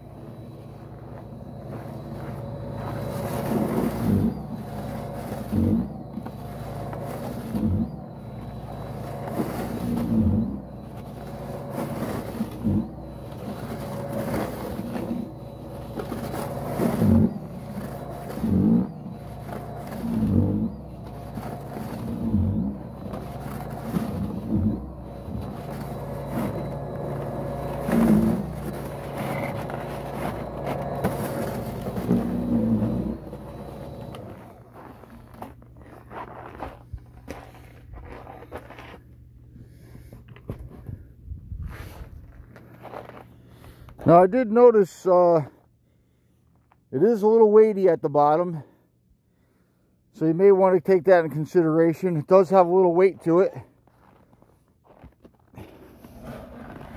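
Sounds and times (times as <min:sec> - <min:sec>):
snow broom motor whirring: 0:00.0 - 0:39.0, 0:55.4 - 0:56.9.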